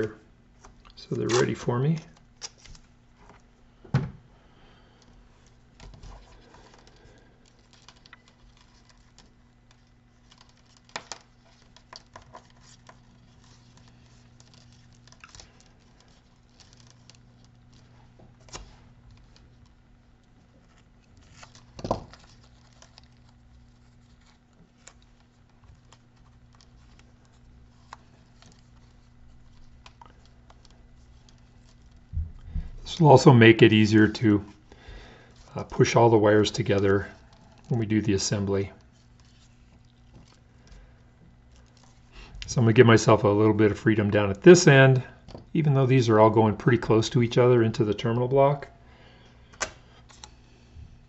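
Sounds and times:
masking tape crinkling: 0.0s - 3.6s, 4.5s - 45.6s
low steady hum: 0.0s - 51.0s.

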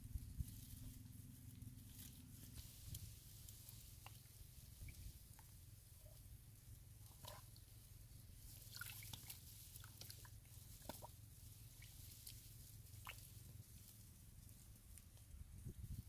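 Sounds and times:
low steady rumble: 0.0s - 16.0s
hand squelching in mud: 8.6s - 12.4s.

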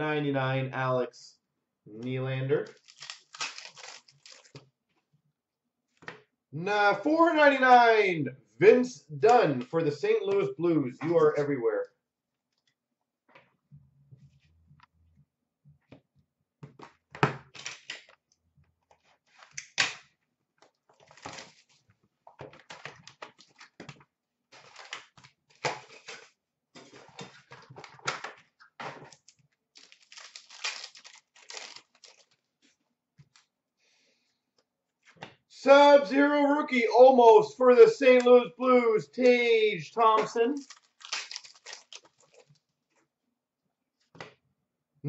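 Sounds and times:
packs tearing and crinkling: 2.6s - 4.6s, 21.0s - 21.8s, 24.5s - 26.3s, 29.1s - 32.4s, 40.6s - 42.6s.

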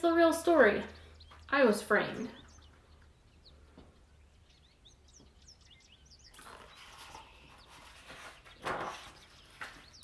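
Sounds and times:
small bird chirping: 0.0s - 10.0s
book pages rustling: 6.8s - 9.9s.

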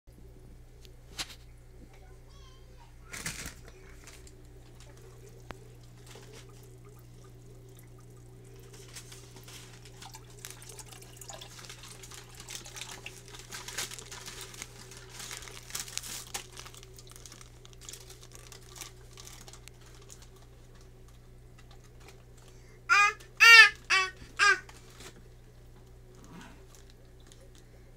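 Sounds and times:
steady low hum: 0.1s - 27.9s
small crackles: 0.8s - 2.1s, 3.0s - 27.9s
aquarium water trickling: 4.3s - 22.0s.

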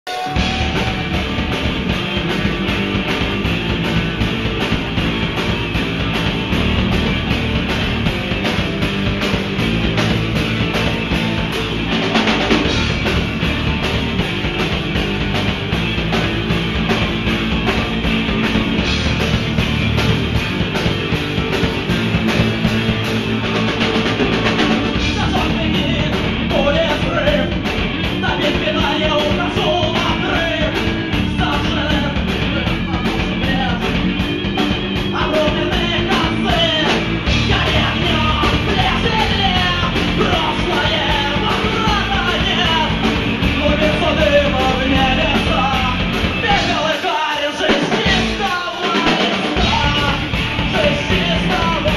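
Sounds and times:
rock band playing: 0.0s - 51.9s
man singing: 24.6s - 34.2s, 35.0s - 51.9s.

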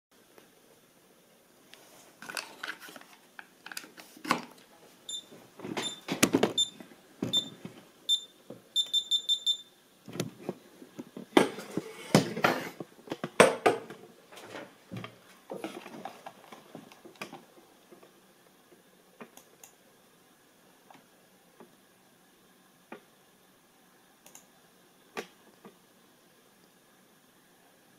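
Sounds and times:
short high electronic beeps: 8.1s - 9.7s.

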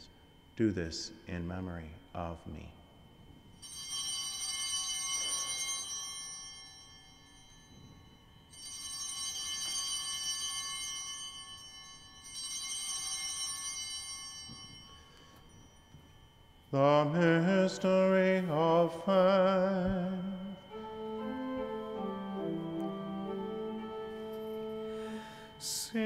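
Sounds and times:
high-pitched altar bells ringing: 3.5s - 26.0s.

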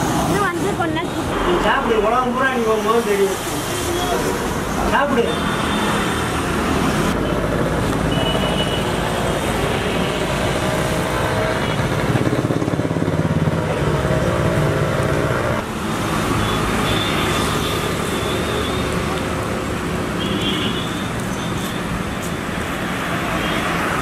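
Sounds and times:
road traffic passing: 0.0s - 24.0s.

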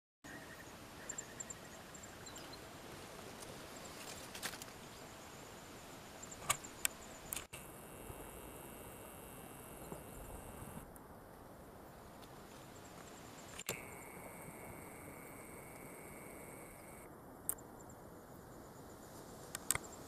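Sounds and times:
steady outdoor hiss: 0.3s - 20.0s
high insect chirping: 4.9s - 10.8s, 12.8s - 17.1s
sharp clicks: 6.4s - 7.7s, 13.5s - 17.6s, 19.5s - 19.9s.

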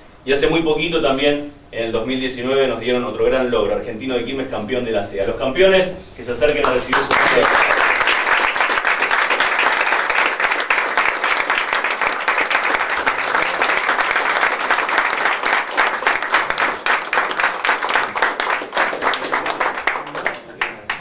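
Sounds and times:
audience applauding: 6.6s - 21.0s.

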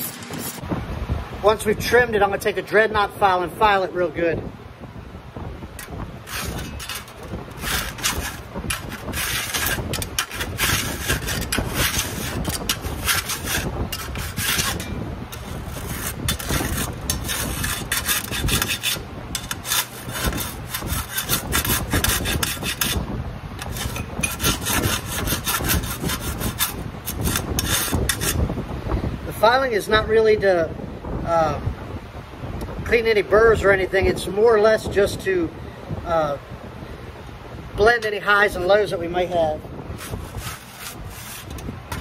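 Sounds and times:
file rasping on sheet metal: 5.8s - 28.5s, 40.0s - 42.0s.

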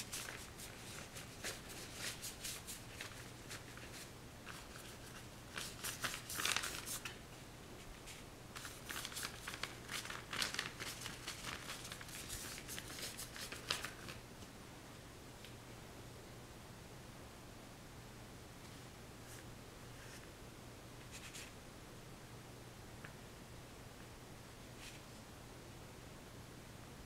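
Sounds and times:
paintbrush strokes on paper: 0.0s - 7.0s, 21.0s - 21.6s.

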